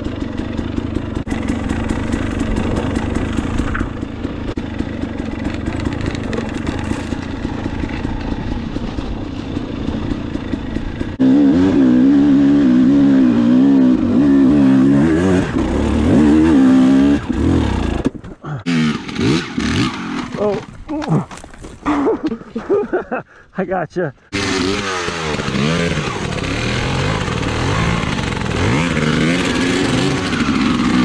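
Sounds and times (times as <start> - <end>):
bike knocks and rattles: 0.0 - 11.2
dirt bike engine running: 0.0 - 23.4, 24.2 - 31.0.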